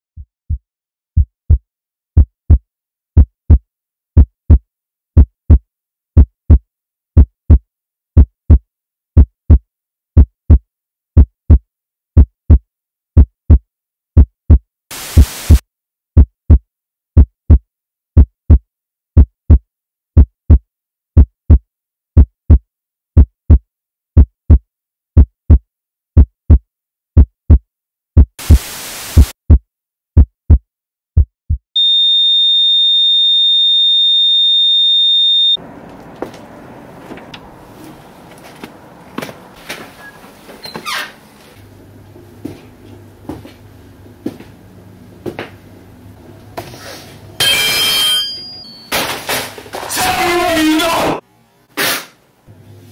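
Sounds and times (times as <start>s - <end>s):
heartbeat double thump: 0.2s - 0.6s, 1.2s - 1.6s, 2.2s - 2.6s, 3.2s - 3.6s, 7.2s - 7.6s, 8.2s - 8.6s, 9.2s - 9.6s, 13.2s - 13.6s, 16.2s - 16.6s, 17.2s - 17.6s, 18.2s - 18.6s, 19.2s - 19.6s, 20.2s - 20.6s, 21.2s - 21.6s, 23.2s - 23.6s, 24.2s - 24.6s, 26.2s - 26.6s, 27.2s - 27.6s, 29.2s - 29.6s, 30.2s - 30.6s, 31.2s - 31.7s
static hiss bursts: 14.9s - 15.6s, 28.4s - 29.4s.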